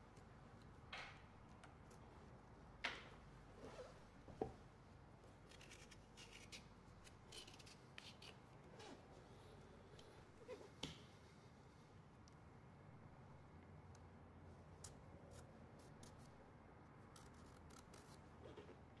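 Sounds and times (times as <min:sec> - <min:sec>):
knife scraping pumpkin rind: 0:05.5 - 0:06.7, 0:07.3 - 0:08.4.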